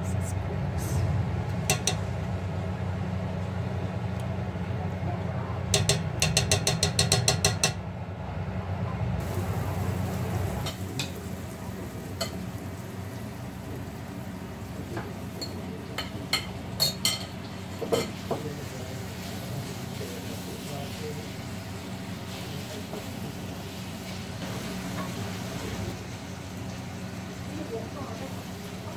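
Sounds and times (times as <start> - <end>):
metal spoon clinking against pot: 1.7 - 2.0, 5.7 - 7.8
onions sizzling in a frying pan: 9.2 - 28.9.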